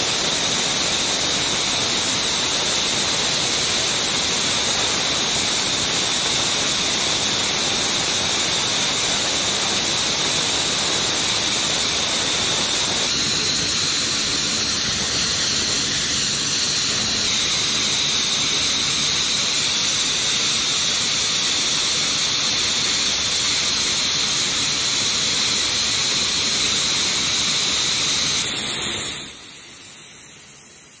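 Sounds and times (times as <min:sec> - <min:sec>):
jet engines running: 0:09.5 - 0:19.6.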